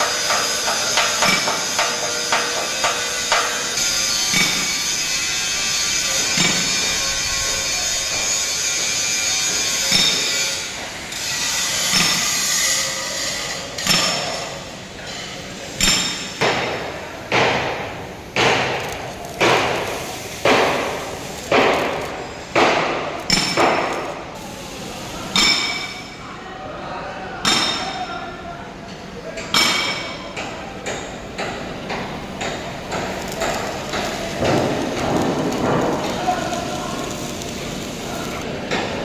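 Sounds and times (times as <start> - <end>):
steady hiss: 0.0 - 26.2, 31.0 - 38.6.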